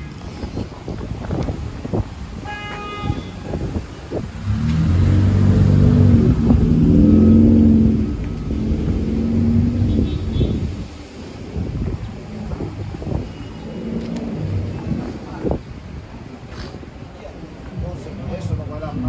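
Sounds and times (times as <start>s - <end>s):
car driving past: 4.4s - 10.9s.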